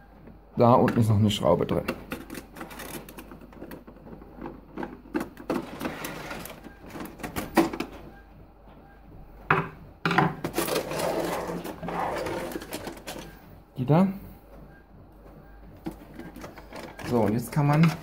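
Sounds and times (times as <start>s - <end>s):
printer scraping on table: 5.5s - 7.6s, 10.4s - 13.4s.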